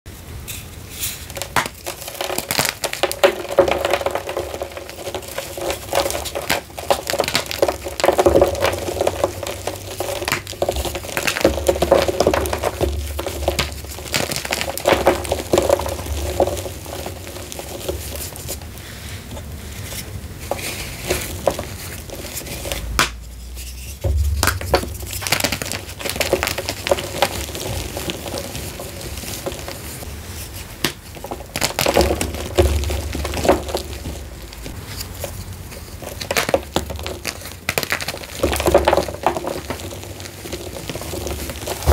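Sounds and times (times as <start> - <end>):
chalk crunching and crackling: 0.4 - 41.9.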